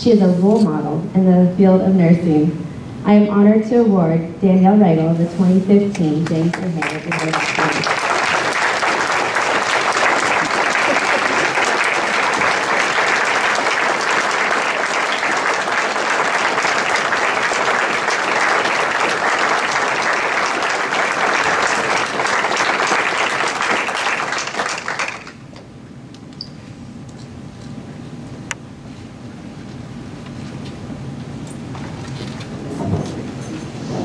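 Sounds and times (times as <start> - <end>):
audience applauding: 6.2 - 25.4.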